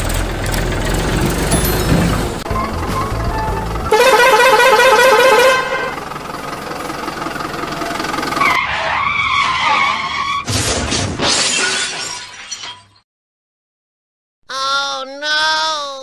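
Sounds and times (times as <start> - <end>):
engine noise: 0.0 - 9.0
truck horn blast: 1.7 - 6.3, 8.4 - 8.7.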